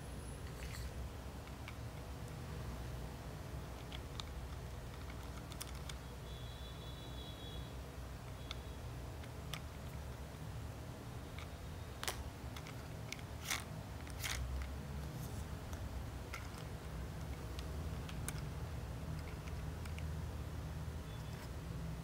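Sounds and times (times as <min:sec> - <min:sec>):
plastic toy parts clicking: 0:03.8 - 0:06.0, 0:09.2 - 0:10.0, 0:11.3 - 0:14.8, 0:15.7 - 0:20.1.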